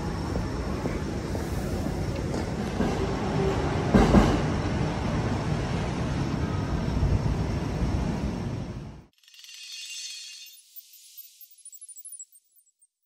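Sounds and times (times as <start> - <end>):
train rumbling on elevated tracks: 0.0 - 9.1.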